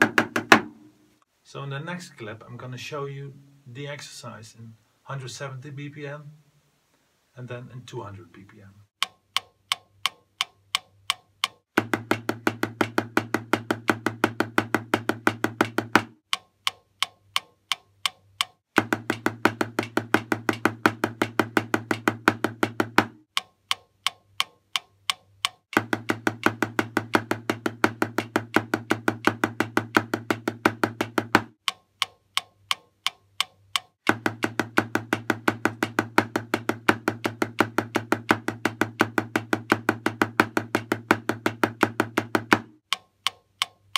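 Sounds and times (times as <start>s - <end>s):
snare drum strokes: 0.0s - 1.0s, 11.8s - 16.2s, 18.8s - 23.2s, 25.8s - 31.5s, 34.1s - 42.8s
metronome ticking: 9.0s - 43.9s.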